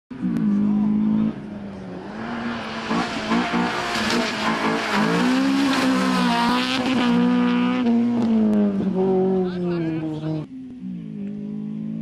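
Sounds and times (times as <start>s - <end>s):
rally car engine revving hard: 0.2s - 10.3s.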